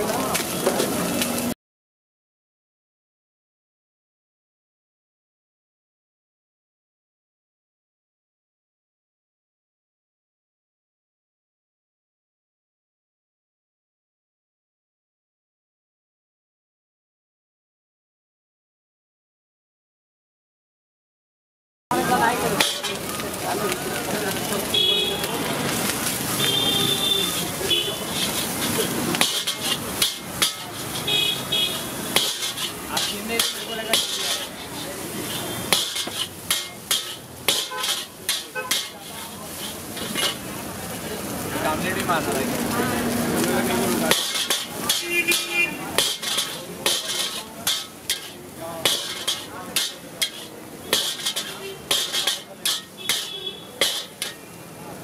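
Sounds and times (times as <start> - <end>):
rice sizzling: 0.0 - 1.6, 21.9 - 55.0
metal spatula clanging on wok: 22.5 - 23.8, 27.7 - 40.5, 43.4 - 54.6.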